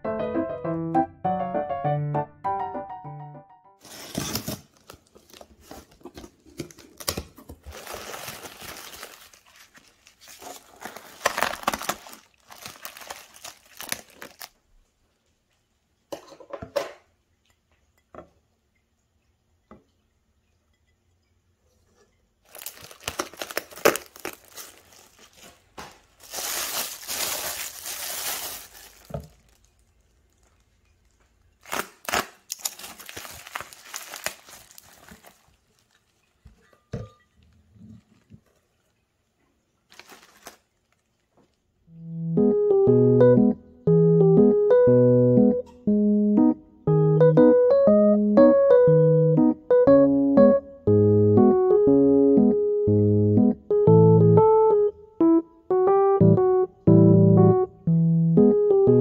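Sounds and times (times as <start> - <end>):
plastic wrap and cardboard rustling: 3.8 - 15.0, 22.4 - 39.0, 39.8 - 41.7.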